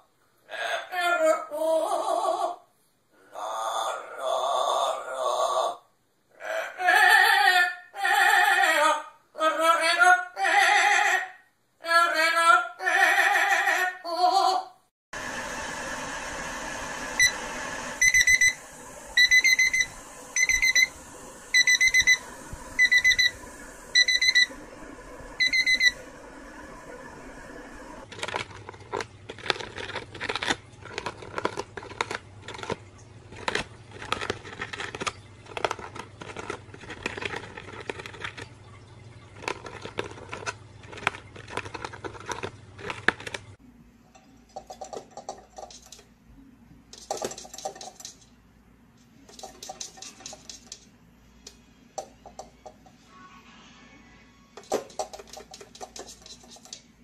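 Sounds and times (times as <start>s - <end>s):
short electronic beeps: 18.0s - 18.6s, 19.2s - 20.9s, 21.5s - 22.2s, 22.8s - 24.5s, 25.4s - 26.0s
parrot chewing paper: 28.0s - 43.6s.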